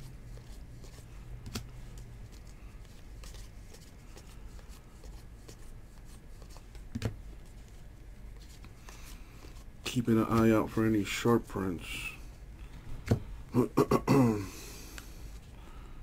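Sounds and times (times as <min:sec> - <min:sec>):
trading cards flipping by hand: 0:00.0 - 0:10.6.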